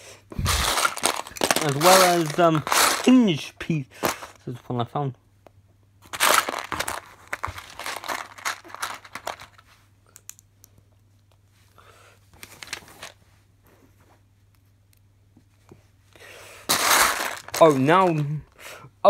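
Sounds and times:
plastic toy bricks clattering: 0.4 - 3.4, 6.1 - 9.6, 16.7 - 18.4.

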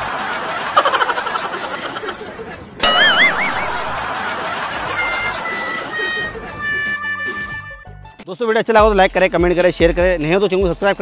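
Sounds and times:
crowd murmur: 0.0 - 7.7
warbling comic tone: 2.8 - 4.1
high music notes: 2.8 - 8.2.

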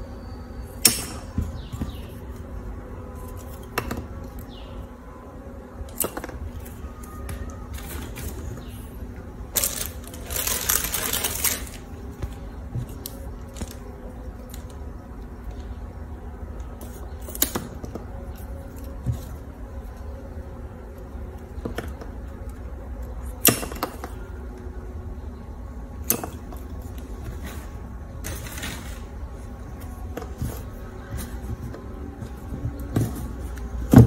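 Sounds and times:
plastic rustling: 9.5 - 13.9.

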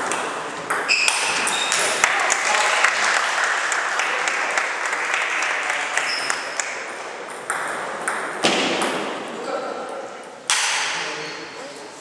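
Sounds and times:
table tennis balls clicking: 0.0 - 2.4.

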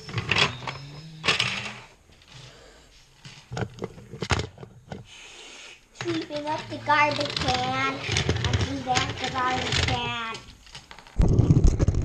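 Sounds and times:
plastic toys knocking on hard floor: 6.0 - 12.0.

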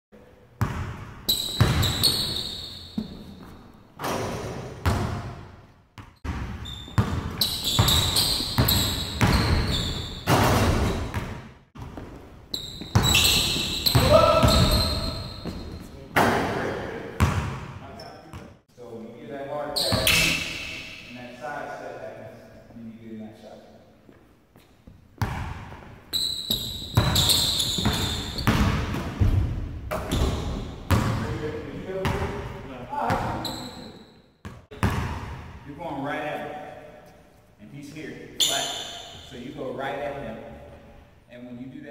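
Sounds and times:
basketball bouncing: 0.6 - 5.4, 6.0 - 16.3, 17.2 - 17.8, 25.2 - 25.9, 26.5 - 31.2, 34.4 - 35.6
sneakers squeaking on gym floor: 0.6 - 5.4, 6.0 - 16.1, 17.2 - 18.6, 19.7 - 21.1, 24.0 - 31.2, 33.0 - 35.2, 38.4 - 39.5.

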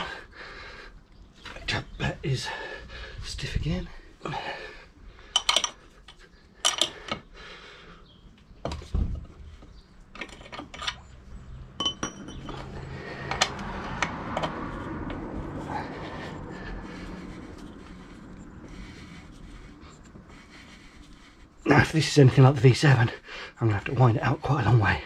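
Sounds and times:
steel tools clinking on metal: 5.4 - 7.2, 10.1 - 11.2, 11.8 - 12.7
low steady rumble: 10.8 - 21.6.

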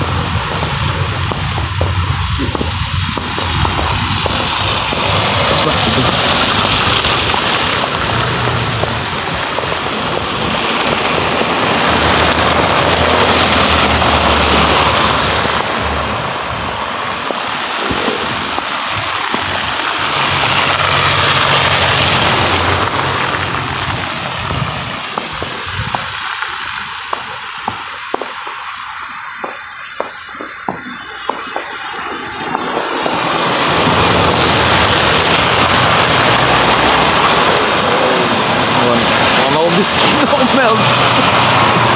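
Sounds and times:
low engine hum: 0.0 - 28.6
tyres hissing through slush: 4.1 - 8.6, 33.2 - 41.9.

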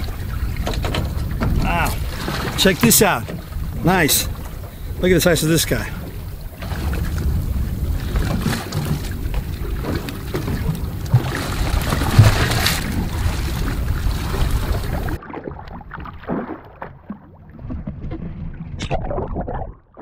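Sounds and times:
wind and water hiss: 0.0 - 15.2
wind buffeting microphone: 0.0 - 15.2.

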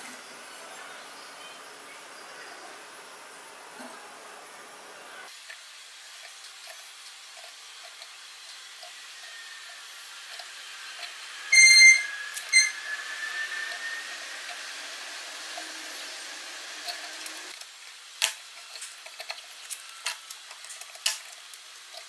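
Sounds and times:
marker squeaking: 11.5 - 13.9.

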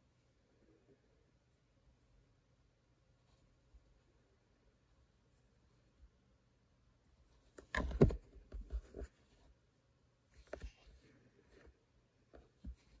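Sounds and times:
plastic case scraping and knocking: 7.6 - 9.1.

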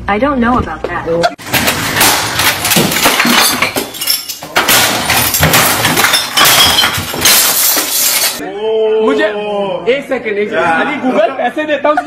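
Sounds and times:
glass breaking and clinking: 1.4 - 8.4
objects crashing and smashing: 1.4 - 8.4.

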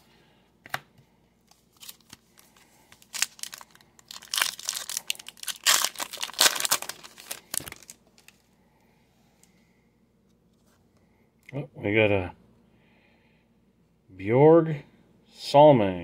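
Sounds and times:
card wrapper tearing and crinkling: 1.5 - 8.4.

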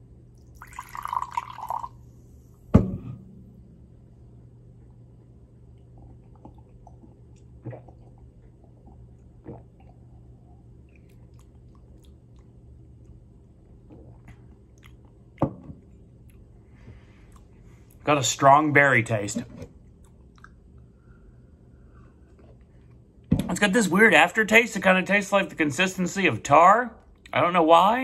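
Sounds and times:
low steady hum: 0.0 - 28.0
person gulping a drink: 0.4 - 2.0, 5.6 - 15.4
thump: 2.7 - 3.4.

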